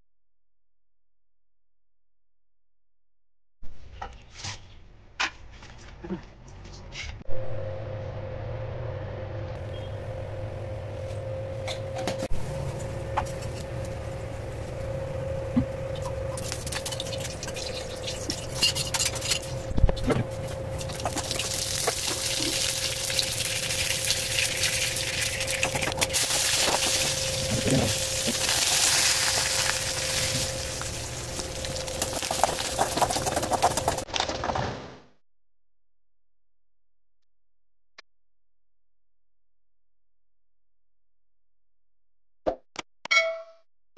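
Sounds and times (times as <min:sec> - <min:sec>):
steady low hum: 0:07.0 - 0:34.1
hot oil sizzling and spluttering: 0:16.3 - 0:19.4, 0:20.8 - 0:33.7.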